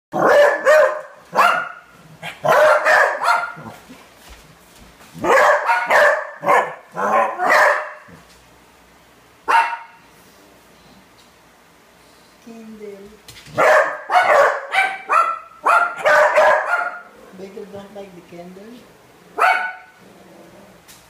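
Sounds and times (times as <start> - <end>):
dog barking: 0.1 - 3.8, 5.2 - 8.2, 9.5 - 10.0, 13.6 - 17.1, 19.4 - 20.0.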